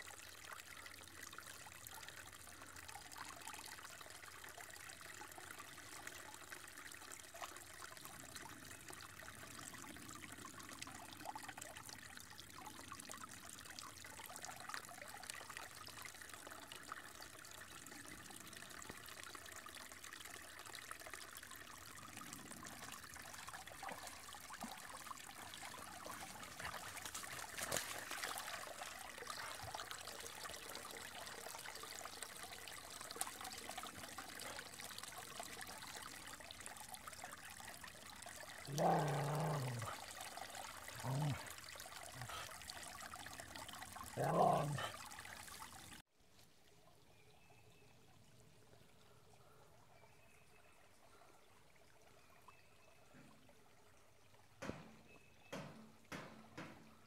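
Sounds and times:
creek trickling: 0:00.0 - 0:57.0
dogs wading through water: 0:22.0 - 0:36.2
water splash: 0:25.5 - 0:29.0.

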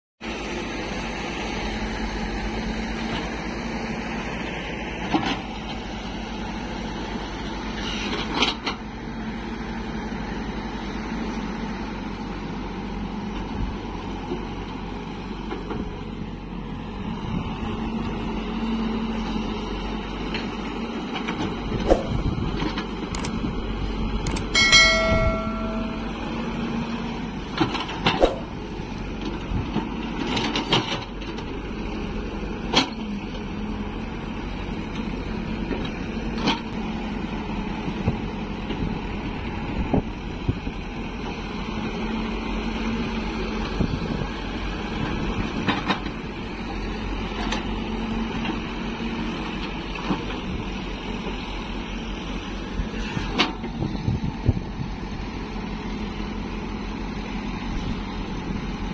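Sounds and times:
excavator diesel engine running: 0:00.2 - 0:58.9
short ringing tone: 0:24.4 - 0:26.8.

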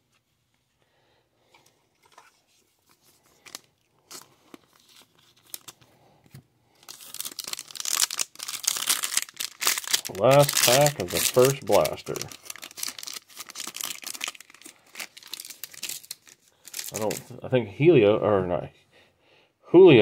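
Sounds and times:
wrapper crinkling as torn open: 0:02.9 - 0:05.8, 0:06.8 - 0:17.3.

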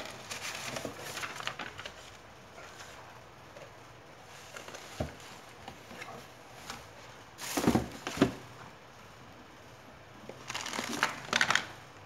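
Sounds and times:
plastic wrapping crinkling: 0:00.0 - 0:02.2.

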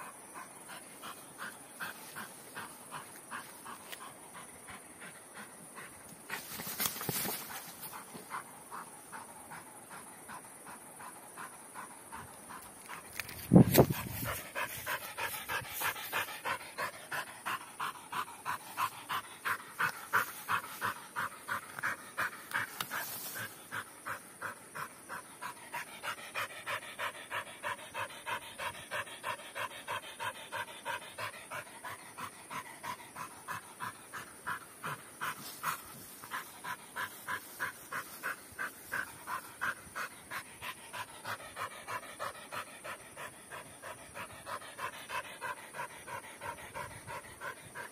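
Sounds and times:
dog panting: 0:00.0 - 0:47.9.

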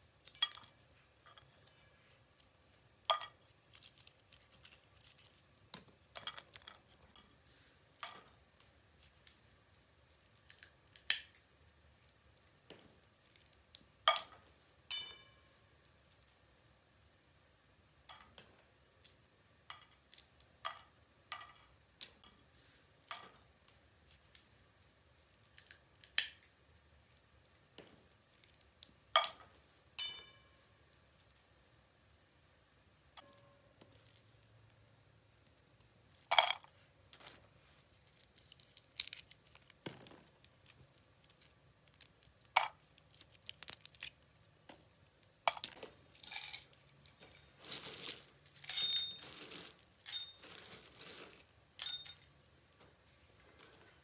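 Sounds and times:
shell pieces clinking into metal bowl: 0:00.2 - 0:00.8, 0:45.5 - 0:52.4
walnut shells cracking: 0:02.4 - 0:07.2, 0:09.0 - 0:11.4, 0:33.2 - 0:46.4.

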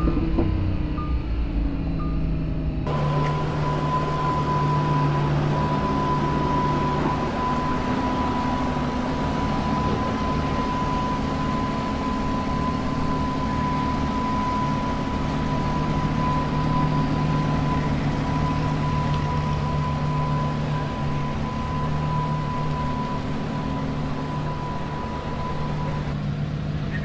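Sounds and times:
high-pitched whine: 0:00.0 - 0:26.3
car engine idling: 0:00.0 - 0:27.0.

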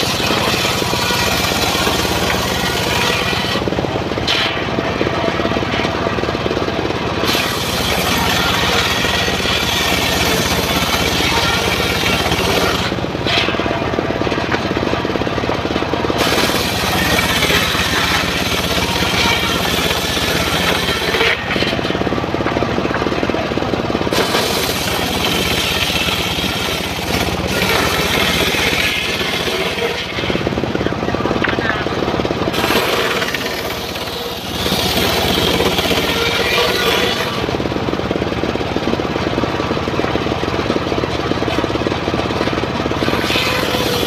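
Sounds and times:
saw blade cutting wood: 0:00.0 - 0:06.1, 0:07.2 - 0:14.7, 0:16.1 - 0:22.2, 0:24.1 - 0:31.9, 0:32.5 - 0:37.7, 0:42.9 - 0:44.0
engine running steadily: 0:00.0 - 0:44.0.

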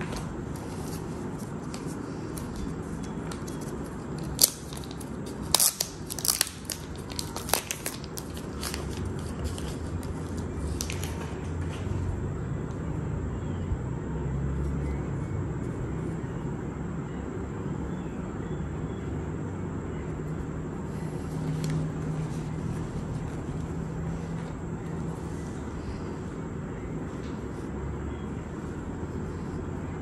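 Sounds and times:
packaging wrap crinkling: 0:04.2 - 0:11.2.

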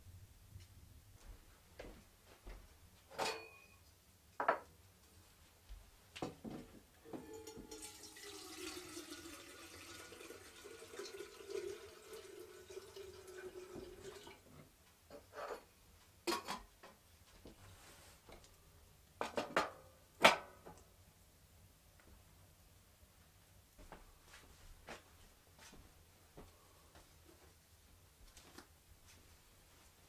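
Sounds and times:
pot knocking and clunking: 0:04.4 - 0:04.7
held ringing tone: 0:07.1 - 0:08.0
water pouring into a pot: 0:07.3 - 0:14.5.

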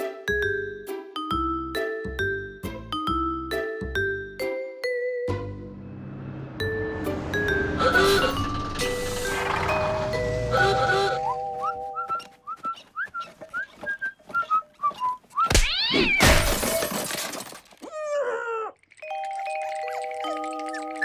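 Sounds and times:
rising and falling whoosh: 0:05.7 - 0:11.5
jaunty whistled tune: 0:10.5 - 0:15.5
light ticking steps: 0:11.6 - 0:15.4.

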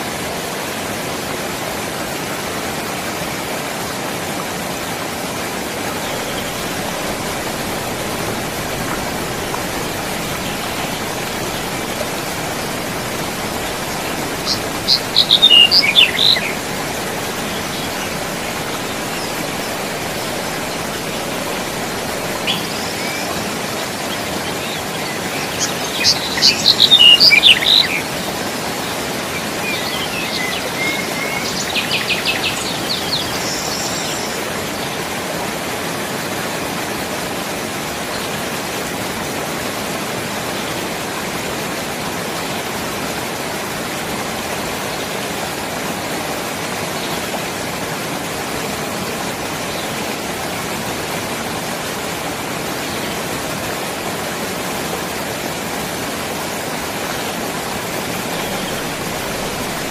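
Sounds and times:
stream rushing over rocks: 0:00.0 - 0:59.9
songbird singing: 0:05.9 - 0:35.0, 0:58.0 - 0:59.9.

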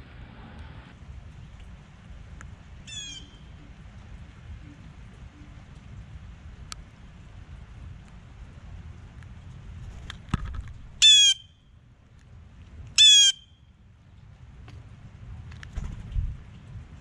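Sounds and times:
rain patter on camera: 0:01.0 - 0:10.9
blue jay calls: 0:02.8 - 0:03.7, 0:11.0 - 0:11.6, 0:13.0 - 0:13.6.

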